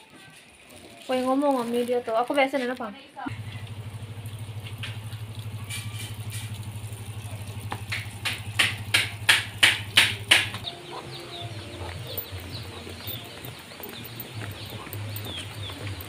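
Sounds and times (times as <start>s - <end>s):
motor scooter engine idling: 3.3s - 16.0s.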